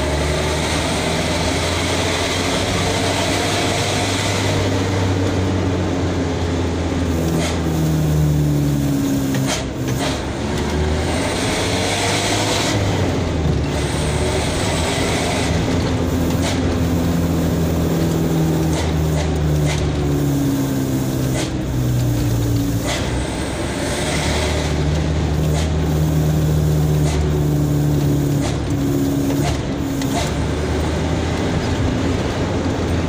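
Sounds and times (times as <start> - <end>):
truck engine running: 0.0 - 33.0.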